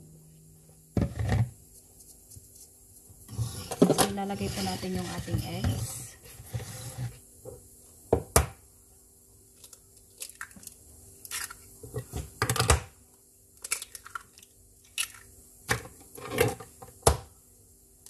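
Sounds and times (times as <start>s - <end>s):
eggshells cracking into bowl: 9.6s - 11.6s, 13.6s - 15.3s.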